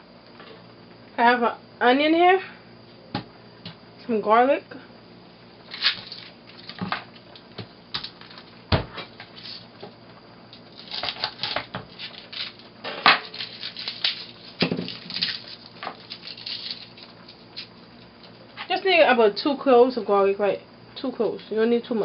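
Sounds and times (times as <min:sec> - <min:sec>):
onion skins crackling: 0:05.6 - 0:09.8, 0:10.5 - 0:18.6.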